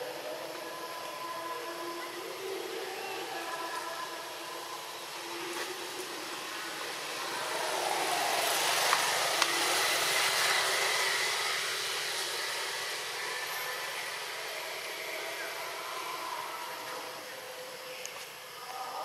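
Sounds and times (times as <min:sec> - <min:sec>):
vehicle passing by: 0:06.6 - 0:14.9.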